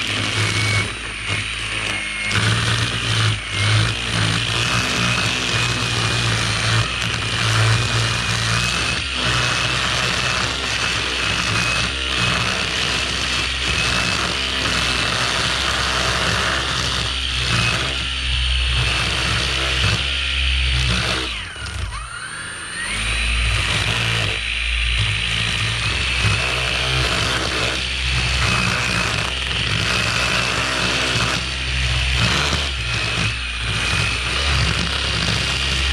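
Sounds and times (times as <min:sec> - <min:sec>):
string trimmer cutting grass: 0:00.0 - 0:35.9.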